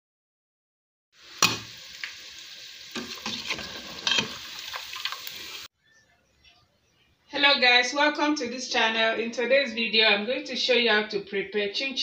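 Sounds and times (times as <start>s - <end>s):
dough deep-frying in oil: 1.2s - 5.7s
metal spoon scraping a pot: 3.0s - 4.4s.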